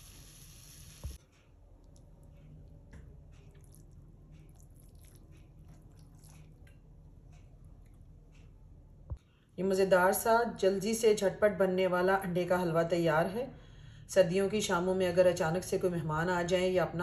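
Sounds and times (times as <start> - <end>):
steady hiss: 0.0 - 1.2.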